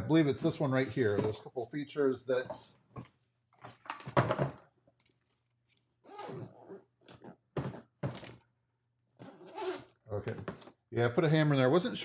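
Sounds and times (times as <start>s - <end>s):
fabric tool bag knocks and rustling: 7.6s - 8.3s.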